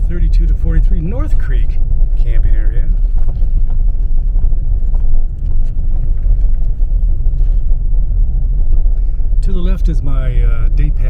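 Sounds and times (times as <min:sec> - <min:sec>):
road noise: 0:00.0 - 0:11.0
truck engine rumble: 0:00.0 - 0:11.0.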